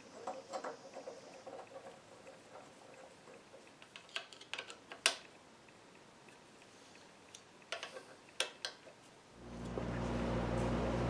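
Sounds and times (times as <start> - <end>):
steady low hum: 9.3 - 11.0.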